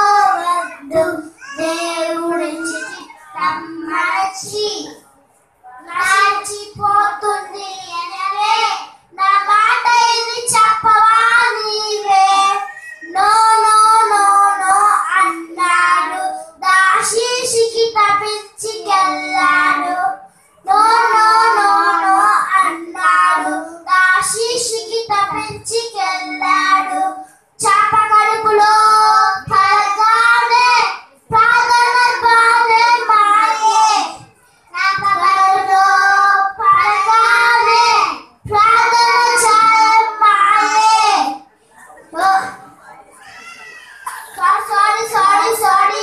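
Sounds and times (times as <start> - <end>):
boys singing into microphones: 0.0 - 5.0, 5.7 - 41.4, 42.1 - 42.7, 44.1 - 46.0.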